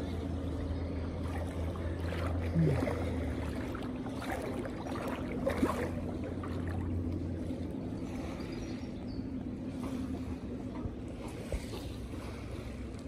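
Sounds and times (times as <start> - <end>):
water splashes: 0.0 - 8.8
steady low hum: 0.0 - 13.0
water lapping in shallows: 0.0 - 13.0.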